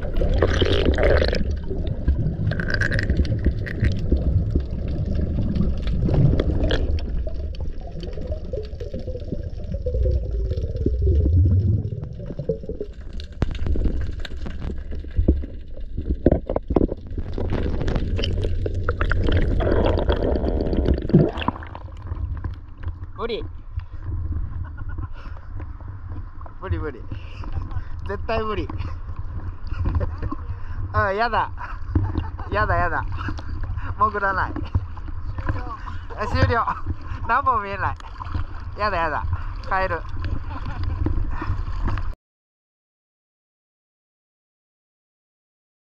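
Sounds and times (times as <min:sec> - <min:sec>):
gurgling air bubbles: 0:00.0 - 0:22.8
muffled underwater rumble: 0:00.0 - 0:42.2.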